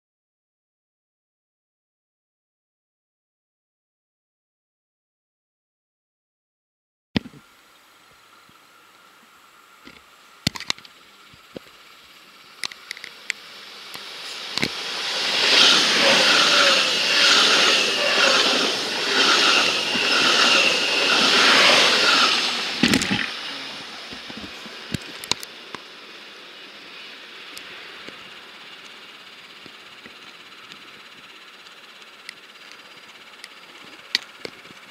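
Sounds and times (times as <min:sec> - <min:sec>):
train passing at speed: 0:13.4 - 0:32.1.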